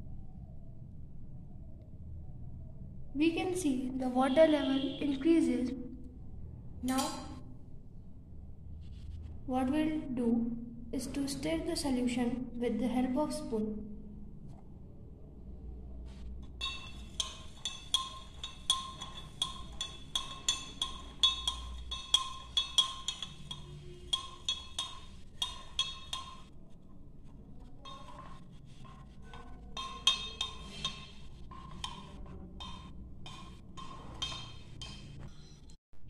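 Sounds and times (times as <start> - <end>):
spoon clinking in a glass: 16.6 - 26.5, 27.8 - 35.6.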